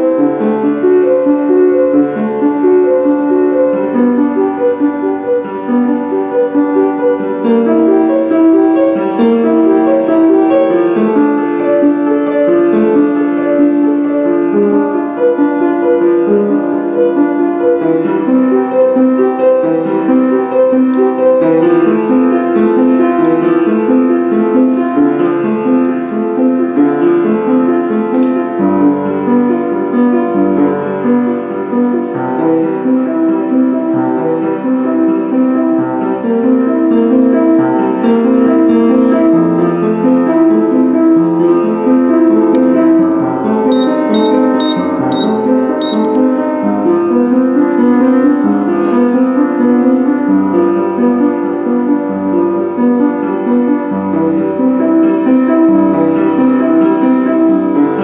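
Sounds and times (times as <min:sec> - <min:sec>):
slow keyboard chords: 0:41.6 - 0:49.2.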